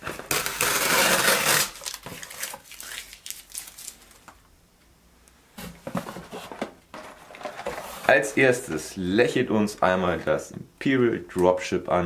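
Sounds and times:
packing material rustling in box: 0.0s - 4.3s.

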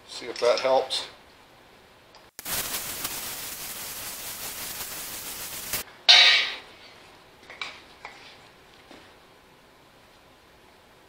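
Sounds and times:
gas torch hissing: 2.4s - 5.8s.

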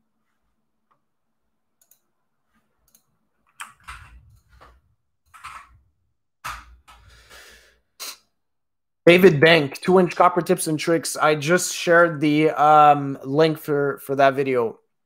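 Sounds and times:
mouse clicks and keystrokes: 1.8s - 2.1s, 2.8s - 5.7s.

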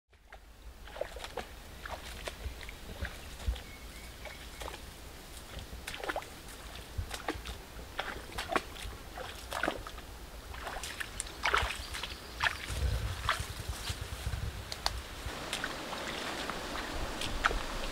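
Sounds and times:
vegetation rustling: 9.1s - 17.9s
footsteps swishing through tall grass: 10.5s - 17.9s.

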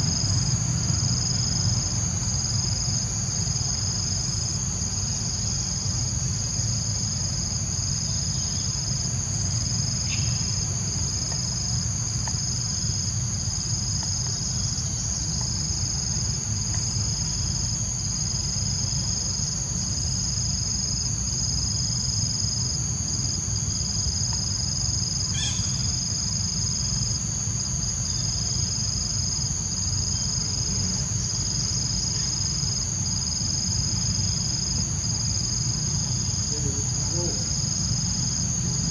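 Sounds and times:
insect chorus drone: 0.0s - 38.9s
faint ticks: 12.2s - 12.4s.

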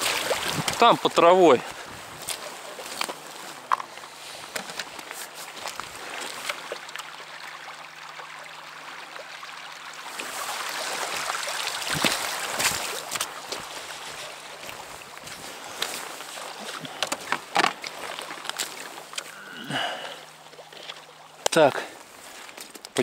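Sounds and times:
footsteps crunching on pebbles: 0.0s - 6.5s, 11.1s - 19.1s, 21.5s - 23.0s
water splashing and streaming: 0.0s - 23.0s.

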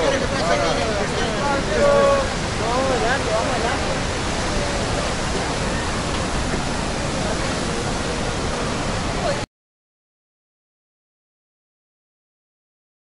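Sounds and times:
faint crowd voices: 0.0s - 9.5s
waterfall roaring: 0.0s - 9.5s.

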